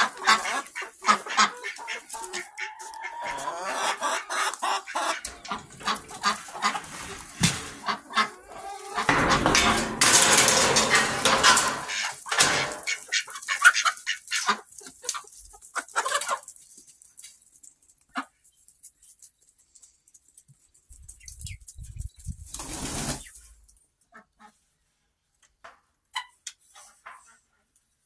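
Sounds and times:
chickens clucking: 0:00.0 - 0:19.5, 0:20.4 - 0:24.8, 0:26.0 - 0:27.6
loud rustling: 0:05.2 - 0:08.3, 0:09.0 - 0:13.1.

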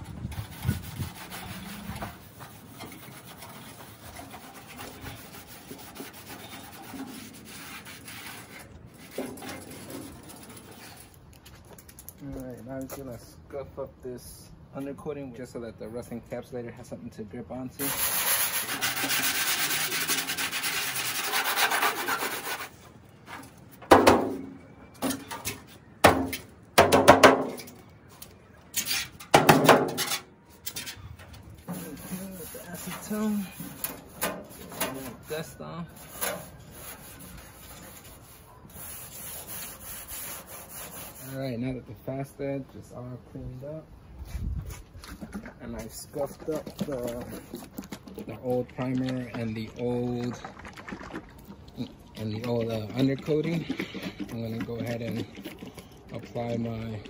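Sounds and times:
rag wiping over steel: 0:00.3 - 0:11.0, 0:17.8 - 0:22.8, 0:31.6 - 0:41.6
scuff pad rubbing metal: 0:17.9 - 0:22.7
sheet metal knocking and clattering: 0:23.8 - 0:25.3, 0:26.0 - 0:27.7, 0:29.2 - 0:30.2.

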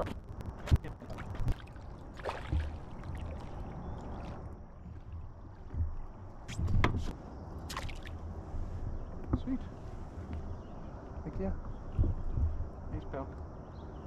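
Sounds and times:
fish splashing at the surface: 0:01.5 - 0:04.4.

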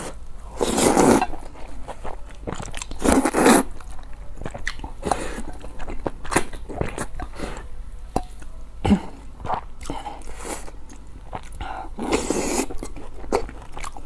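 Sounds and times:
person slurping noodles: 0:00.0 - 0:01.3, 0:03.0 - 0:03.7, 0:12.0 - 0:12.8.

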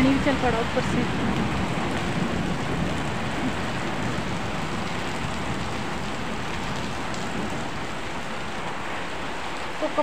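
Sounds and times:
heavy rain on concrete: 0:00.0 - 0:10.0.

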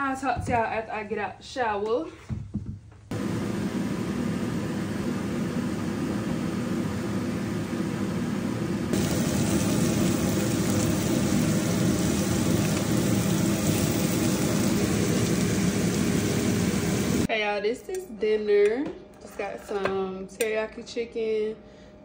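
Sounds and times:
food sizzling in a frying pan: 0:08.9 - 0:17.3.

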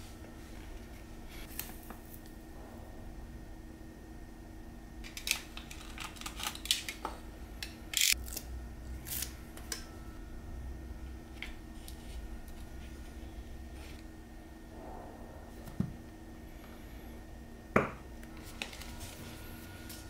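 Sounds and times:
tape clicks and crinkles: 0:05.0 - 0:08.4.

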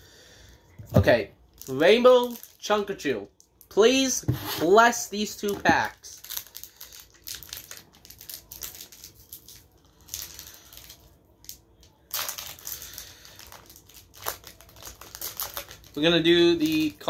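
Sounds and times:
foil wrapper crinkling: 0:05.4 - 0:17.0.

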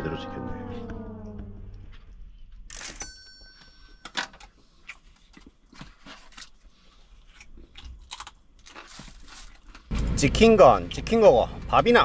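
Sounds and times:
eating clicks and crunches: 0:07.2 - 0:10.1.

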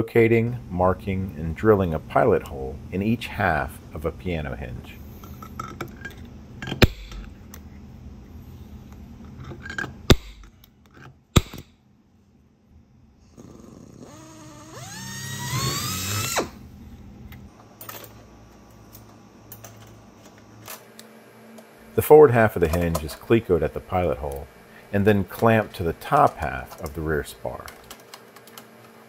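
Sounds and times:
drill whine rising in pitch: 0:14.0 - 0:16.6.

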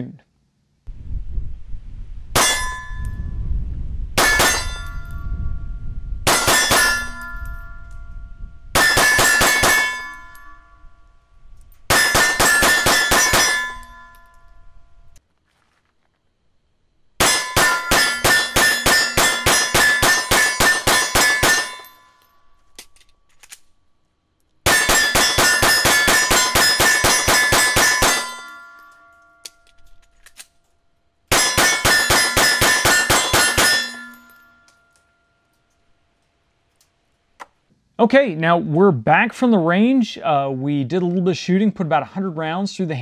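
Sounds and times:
steel target ringing: 0:02.4 - 0:03.4, 0:04.2 - 0:15.2, 0:17.2 - 0:22.6, 0:24.6 - 0:29.8, 0:31.3 - 0:35.5
rapid pistol fire: 0:06.3 - 0:07.0, 0:11.9 - 0:13.6, 0:17.2 - 0:21.8, 0:24.6 - 0:28.3.

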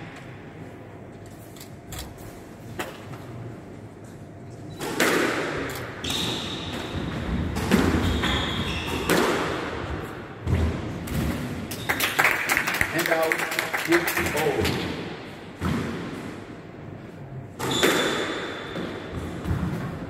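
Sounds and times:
squash ball smacks echoing: 0:04.8 - 0:11.6
sneakers squeaking on wooden floor: 0:06.0 - 0:09.2.

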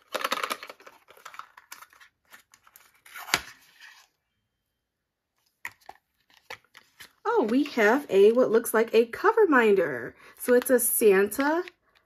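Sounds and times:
cardboard and paper crinkling: 0:00.0 - 0:04.2, 0:05.6 - 0:08.0.

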